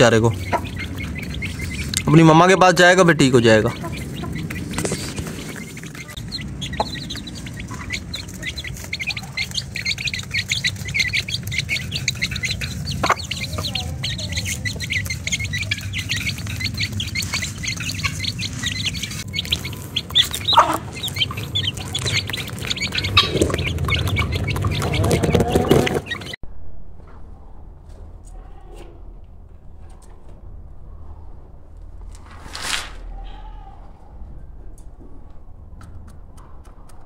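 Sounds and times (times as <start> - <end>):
chicks peeping: 0.0 - 26.4
hens clucking: 0.0 - 26.4.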